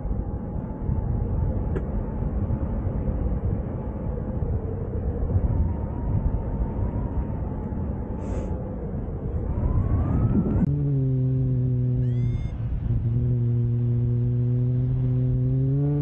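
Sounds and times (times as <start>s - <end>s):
wind rushing over microphone: 0.0s - 16.0s
faint steady tone: 11.8s - 15.3s.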